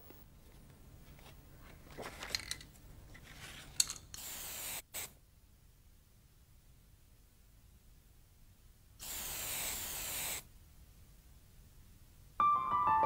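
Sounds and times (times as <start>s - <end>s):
aerosol spray can hissing: 4.2s - 5.2s, 9.0s - 10.5s.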